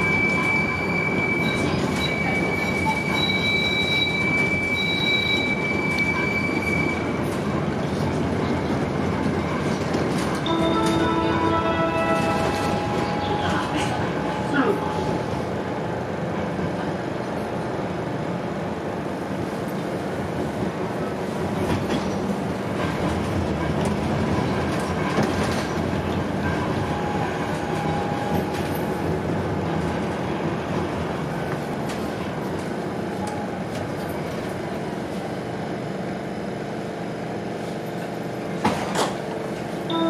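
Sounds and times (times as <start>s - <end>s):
tram rolling rumble: 0.0s - 40.0s.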